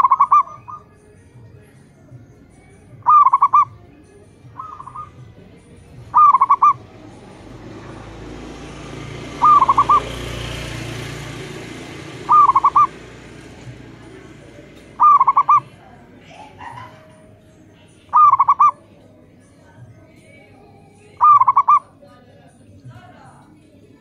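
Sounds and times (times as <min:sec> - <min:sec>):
doves cooing: 0:00.0 - 0:01.0, 0:02.9 - 0:19.0, 0:20.8 - 0:22.0.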